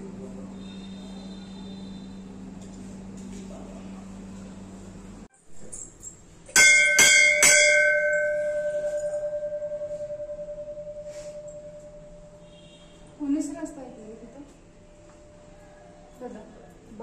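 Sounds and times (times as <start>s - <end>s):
temple bell ringing: 6.5s - 13.1s.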